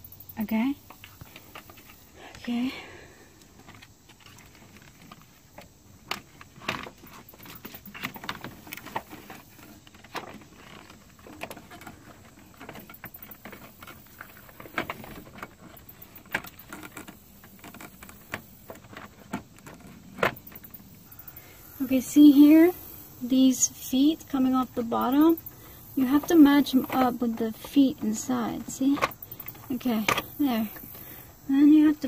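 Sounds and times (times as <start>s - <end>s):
plastic clicking and rattling: 3.4s - 21.4s, 23.7s - 31.3s.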